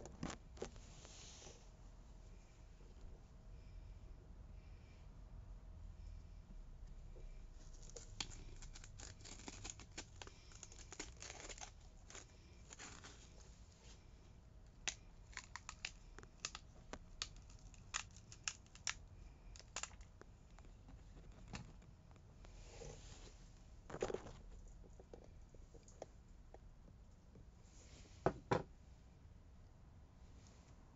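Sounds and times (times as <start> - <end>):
pepper crackling and tearing: 7.7 - 13.4, 14.7 - 20.6.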